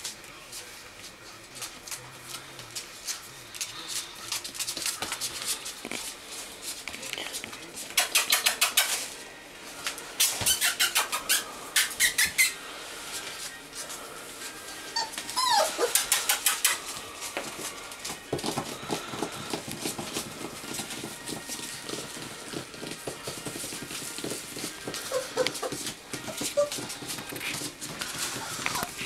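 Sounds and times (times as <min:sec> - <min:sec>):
puppy claws clicking on floor: 0:01.0 - 0:09.2, 0:09.8 - 0:12.6, 0:15.1 - 0:29.0
puppy whimper: 0:14.9 - 0:16.8, 0:24.9 - 0:27.6, 0:28.2 - 0:29.0.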